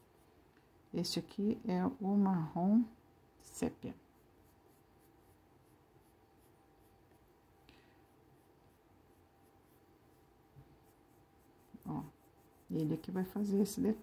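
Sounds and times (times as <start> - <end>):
pencil scratching on paper: 4.0 - 7.4, 8.4 - 14.0.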